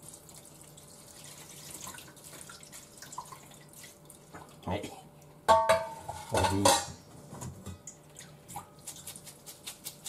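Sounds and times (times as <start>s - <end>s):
water dripping: 0.0s - 4.6s
steel bowl clanking against sink: 5.5s - 7.0s.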